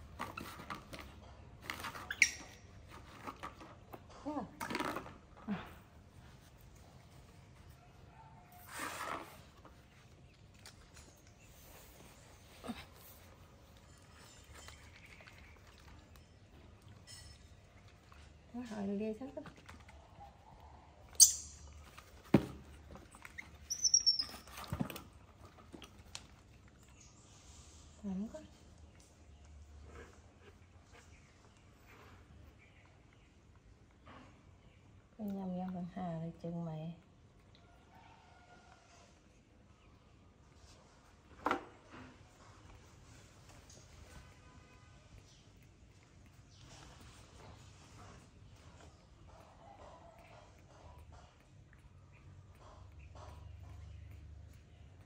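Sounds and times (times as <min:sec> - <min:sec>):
baby monkey squeal: 0:23.4 - 0:24.5.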